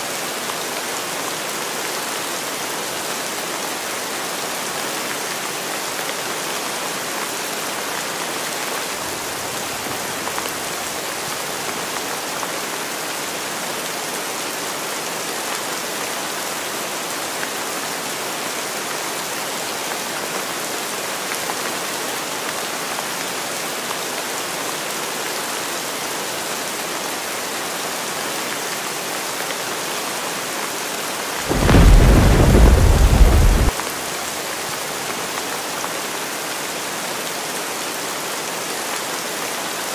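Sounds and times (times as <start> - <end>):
heavy rain: 0.0 - 39.9
thunder rumble: 31.4 - 33.8.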